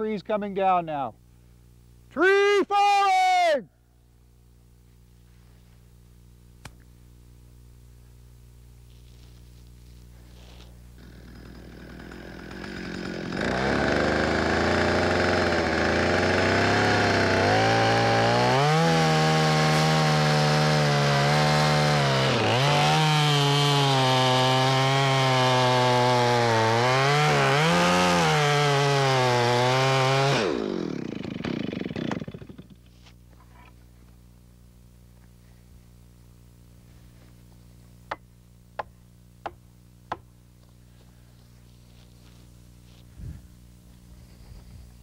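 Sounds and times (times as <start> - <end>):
chainsaw cutting wood: 9.1 - 33.8.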